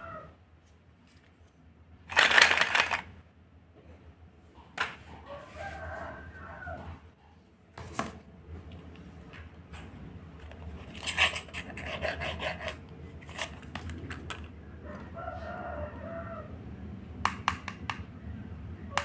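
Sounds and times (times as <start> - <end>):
plastic toys rattling in basket: 2.1 - 3.1.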